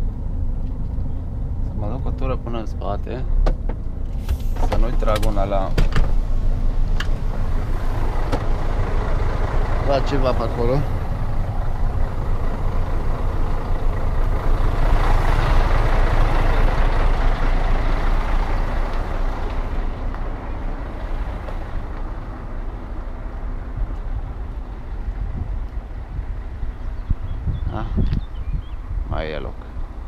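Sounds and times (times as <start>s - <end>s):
truck diesel engine running: 3.8s - 27.7s.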